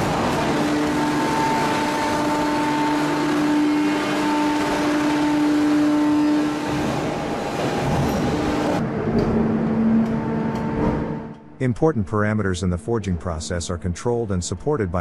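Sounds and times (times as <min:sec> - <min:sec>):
forging press machine noise: 0:00.0 - 0:11.5.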